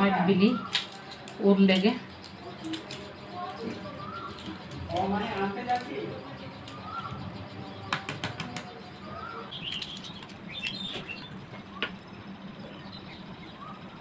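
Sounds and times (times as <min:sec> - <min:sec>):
eggshell cracking: 0:09.5 - 0:12.0.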